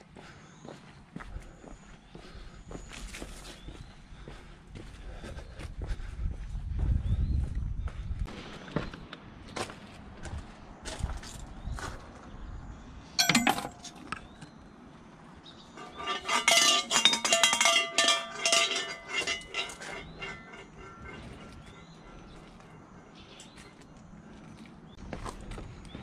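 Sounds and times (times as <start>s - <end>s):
metal bell jingling and rattling: 13.2s - 14.0s, 15.8s - 21.8s
coin clinking into wooden box: 13.2s - 14.2s.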